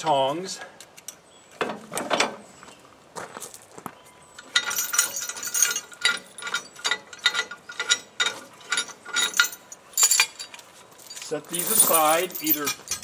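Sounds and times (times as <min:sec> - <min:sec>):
chain clinking against steel frame: 0:04.4 - 0:13.0.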